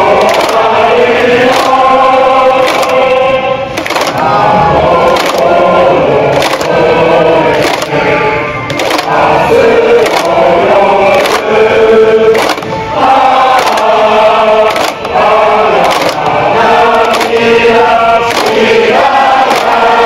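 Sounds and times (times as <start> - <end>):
group of men singing: 0.0 - 20.0
regular beat: 8.7 - 20.0.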